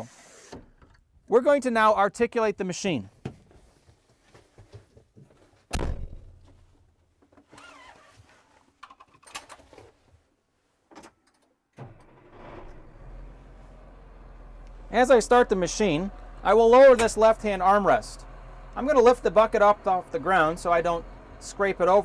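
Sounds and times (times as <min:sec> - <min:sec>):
heavy door thunk: 0:05.7 - 0:06.5.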